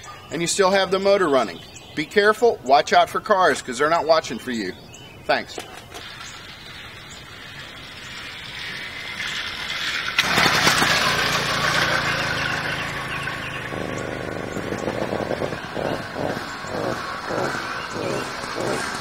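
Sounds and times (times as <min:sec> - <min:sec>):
two-stroke engine starting and revving: 0:06.0 - 0:19.0.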